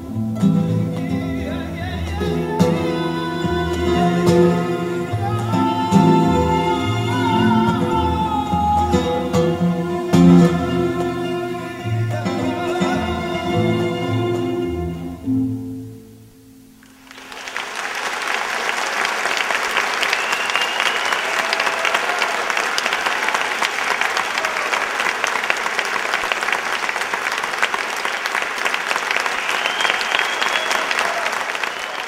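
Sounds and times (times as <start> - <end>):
audience applause: 16.9 - 32.0.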